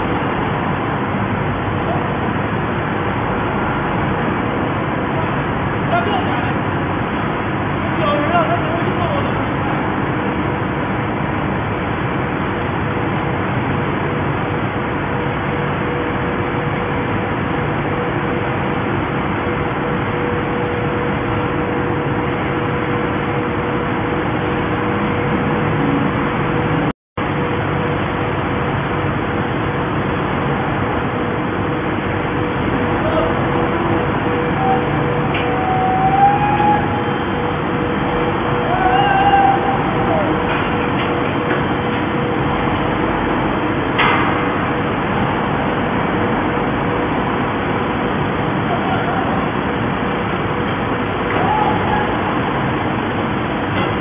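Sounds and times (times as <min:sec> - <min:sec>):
crane engine running: 0:00.0 - 0:54.0
hydraulic whine: 0:15.2 - 0:54.0.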